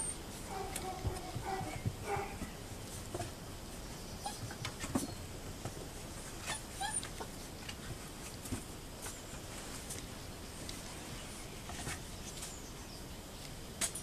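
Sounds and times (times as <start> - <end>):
puppies whimpering and yipping: 4.2 - 4.6, 6.4 - 7.2.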